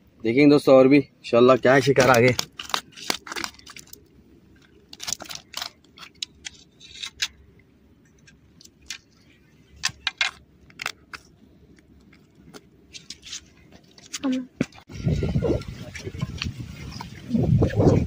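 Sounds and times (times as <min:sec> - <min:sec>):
fish flapping on rocks: 0:01.8 - 0:07.3.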